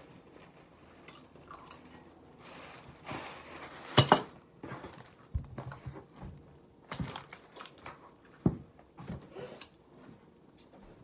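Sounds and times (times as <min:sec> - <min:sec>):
plastic bag rustling: 0:00.0 - 0:06.2.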